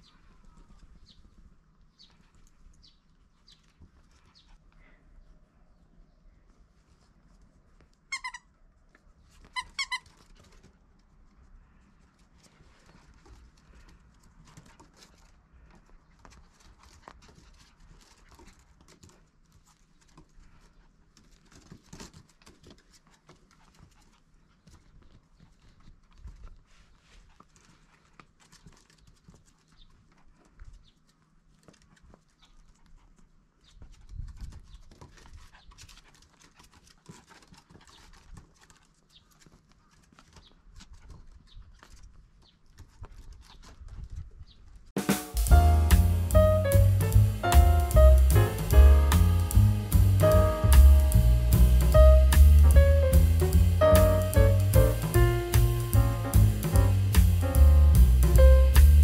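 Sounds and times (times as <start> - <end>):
low rumble: 45.4 - 59.0.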